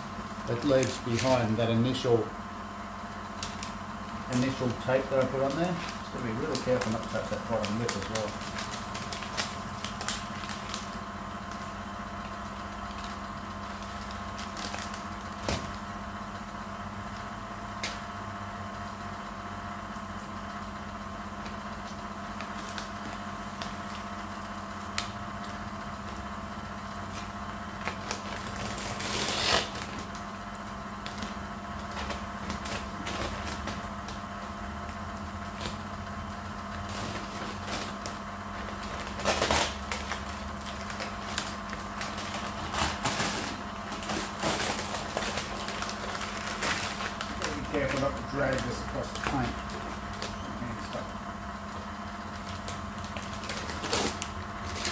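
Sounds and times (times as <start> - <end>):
steady hum: 0.0 - 54.9
masking tape peeling: 3.4 - 11.8, 27.0 - 34.2, 36.7 - 51.1, 52.4 - 54.9
tape ripping: 27.1 - 30.2, 36.8 - 50.9.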